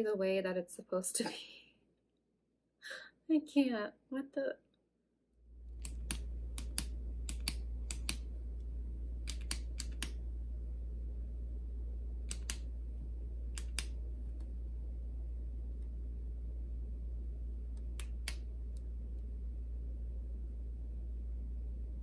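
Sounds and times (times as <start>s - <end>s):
low hum: 5.4s - 22.0s.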